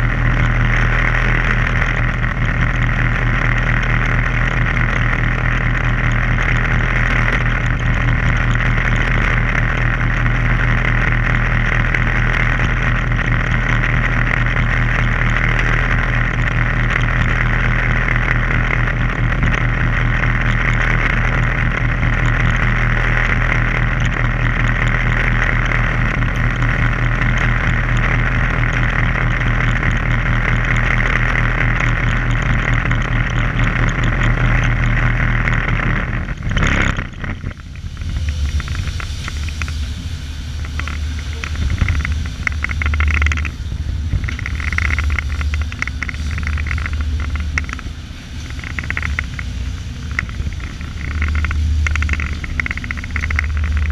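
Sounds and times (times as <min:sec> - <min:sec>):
boat engine humming: 0:00.0 - 0:53.9
steady hiss: 0:37.1 - 0:53.9.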